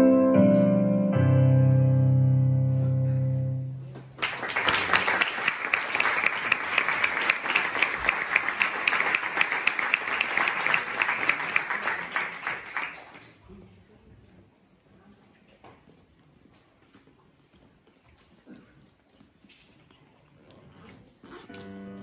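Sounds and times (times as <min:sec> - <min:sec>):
piano music: 0:00.0 - 0:03.9
audience applause: 0:04.1 - 0:13.4.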